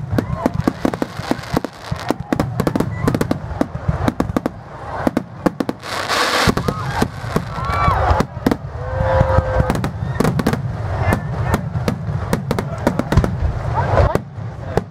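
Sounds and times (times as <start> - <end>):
fireworks hissing: 0.0 - 14.7
fireworks bangs and crackles: 0.0 - 14.9.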